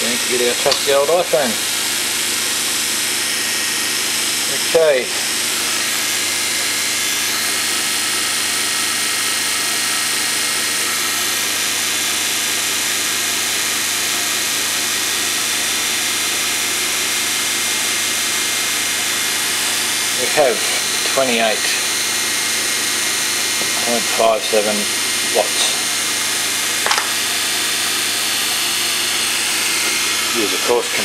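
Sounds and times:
faint motor hum: 0.0 - 31.0
fan air rushing: 19.4 - 31.0.

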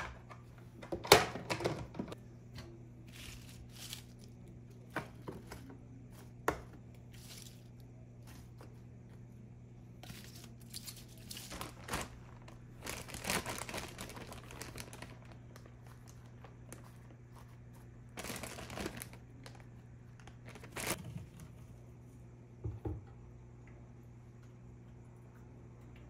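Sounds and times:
steady low hum: 0.0 - 26.0
plastic bag crinkling: 3.1 - 4.5, 10.0 - 17.5, 18.1 - 21.0.

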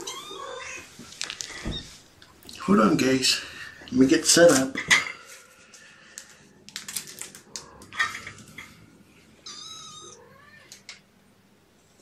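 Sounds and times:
kitten meowing: 9.4 - 10.8.

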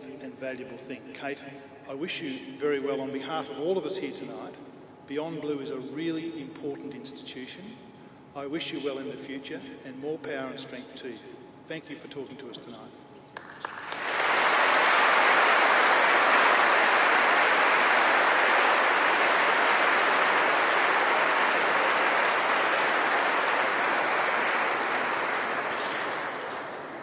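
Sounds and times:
large audience applauding: 13.4 - 27.0.

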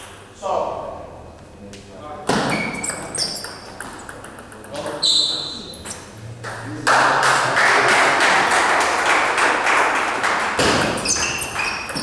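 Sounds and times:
ball clicking on bat and table: 2.9 - 5.0, 10.6 - 12.0
spectators clapping: 6.4 - 11.9.

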